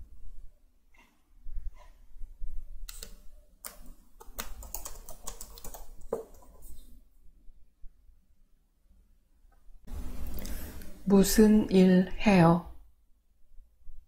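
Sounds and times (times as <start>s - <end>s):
typing on computer keyboard: 2.9s - 6.6s.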